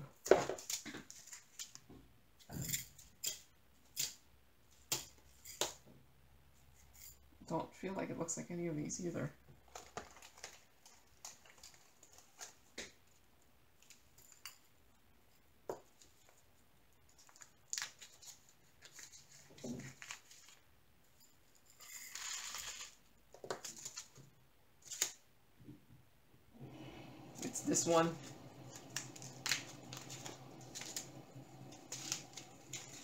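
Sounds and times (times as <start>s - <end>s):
plastic bag rustling: 9.6s - 12.7s, 26.6s - 33.0s
plastic bags crinkling: 9.6s - 12.8s, 27.2s - 33.0s.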